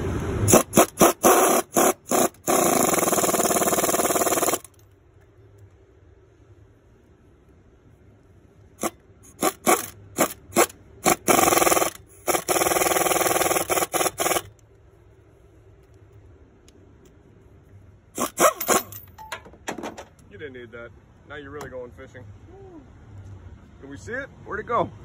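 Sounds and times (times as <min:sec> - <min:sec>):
pneumatic air ratchet bursts: 0:00.4 - 0:04.8, 0:08.8 - 0:14.5, 0:18.2 - 0:19.0.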